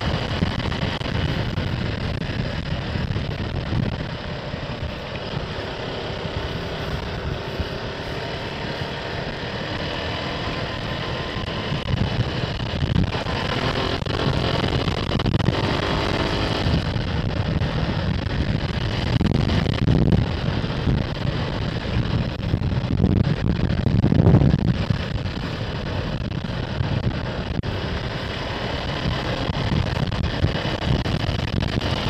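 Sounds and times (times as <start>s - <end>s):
motorcycle engine running: 0.0s - 32.0s
road noise: 0.0s - 32.0s
wind noise: 0.0s - 32.0s.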